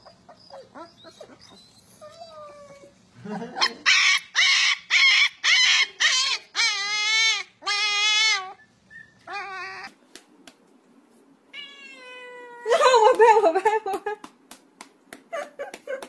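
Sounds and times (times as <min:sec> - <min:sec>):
puppy yipping: 0:00.0 - 0:02.9, 0:03.6 - 0:09.9
puppy howling: 0:03.6 - 0:09.9
cat meowing: 0:09.3 - 0:09.9, 0:11.5 - 0:12.7.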